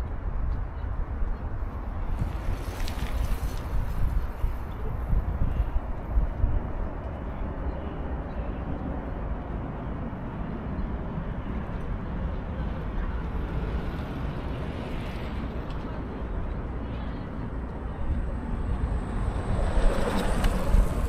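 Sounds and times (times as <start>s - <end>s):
city traffic rumble: 0.0s - 21.0s
wind buffeting microphone: 0.0s - 21.0s.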